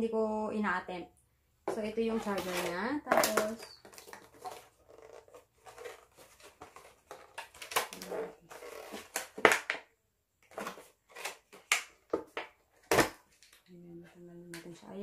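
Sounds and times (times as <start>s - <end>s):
plastic packaging crinkling: 2.1s - 9.7s.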